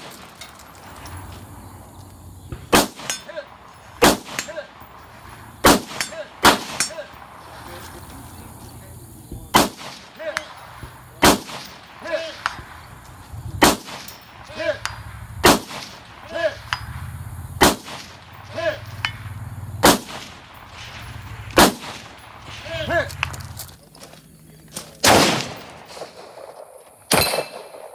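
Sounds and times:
rifle shots: 0.0s - 7.8s, 9.4s - 23.6s, 25.0s - 27.9s
bullet ringing on steel target: 27.1s - 27.8s.

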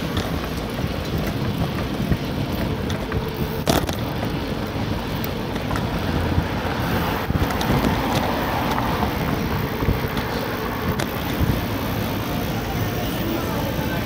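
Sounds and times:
wind rumbling on microphone: 0.0s - 14.0s.

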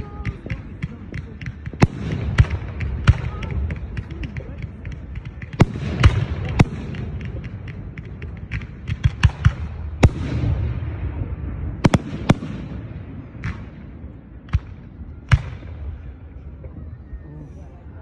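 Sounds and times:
fireworks bursting: 0.0s - 13.8s
low rumble: 1.7s - 18.0s.

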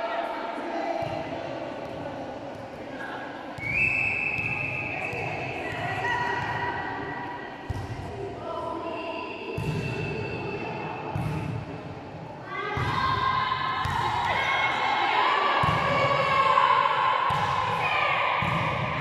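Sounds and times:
people calling and cheering: 12.4s - 19.0s.

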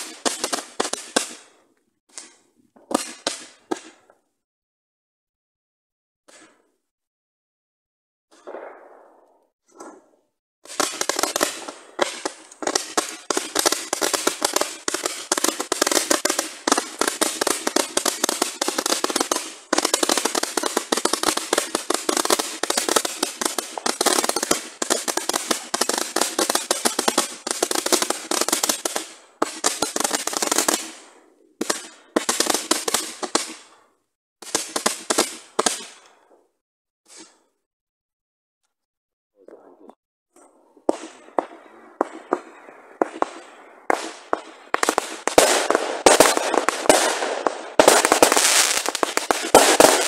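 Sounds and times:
fireworks crackling: 0.0s - 1.6s, 10.7s - 33.7s, 34.4s - 36.0s, 40.9s - 50.0s.

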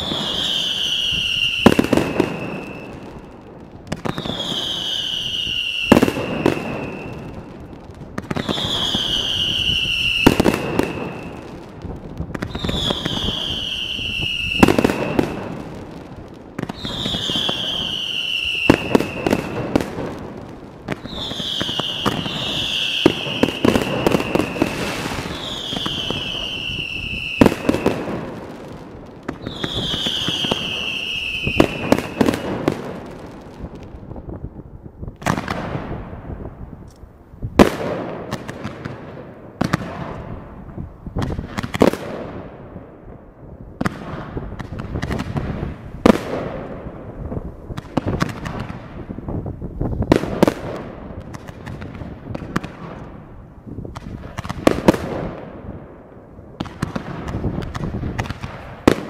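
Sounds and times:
firework whistles falling in pitch: 0.0s - 3.1s, 4.0s - 7.4s, 8.3s - 11.5s, 12.4s - 15.6s, 16.6s - 19.8s, 21.0s - 28.1s, 29.4s - 32.7s
firework bangs: 0.0s - 36.9s, 37.5s - 59.0s
firework crackling: 0.0s - 36.9s, 37.5s - 59.0s.

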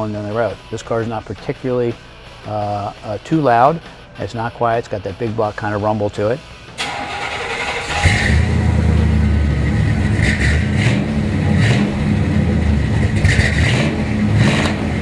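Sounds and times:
car engine rumbling and revving: 6.9s - 15.0s.

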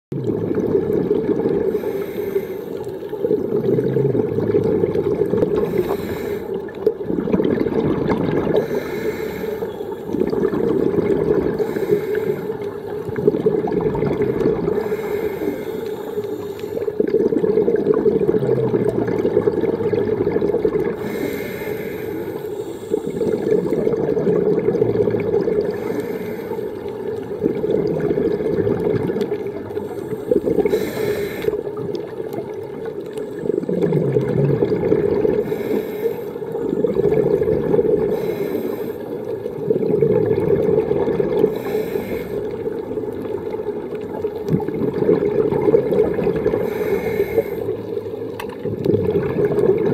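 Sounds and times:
gurgling exhaled bubbles: 0.1s - 49.9s
regulator inhale hissing: 1.6s - 3.2s, 5.5s - 6.7s, 8.5s - 10.3s, 11.5s - 13.1s, 14.6s - 17.0s, 21.0s - 23.8s, 25.7s - 27.0s, 29.6s - 31.7s, 35.4s - 37.0s, 38.0s - 39.4s, 41.4s - 42.8s, 46.6s - 48.0s.

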